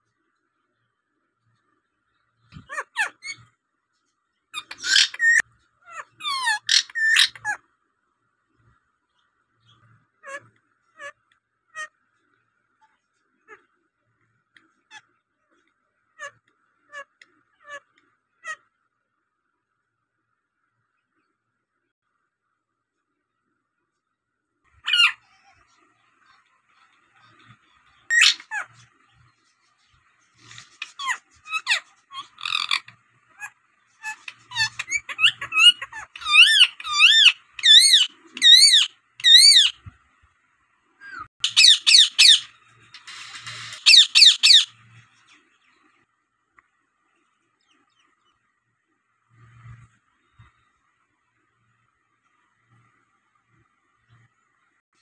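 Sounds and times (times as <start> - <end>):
parakeet chirping and screeching: 2.5 - 3.5, 4.5 - 7.6, 9.6 - 12.0, 16.1 - 18.6, 24.8 - 39.9, 41.0 - 45.9.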